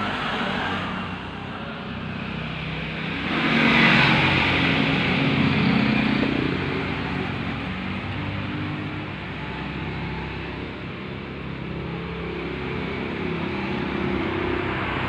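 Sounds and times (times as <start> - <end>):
vehicle engine passing by: 0.0 - 10.9.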